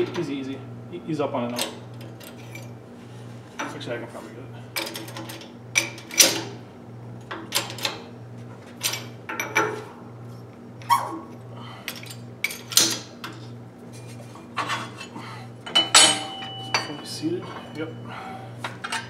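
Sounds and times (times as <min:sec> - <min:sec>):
steel parts clinking and knocking: 0:14.6 - 0:17.9, 0:18.6 - 0:19.0.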